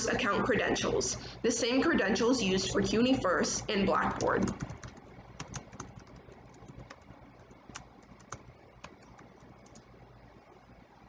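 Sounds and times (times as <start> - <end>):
typing on computer keyboard: 4.3 - 9.9.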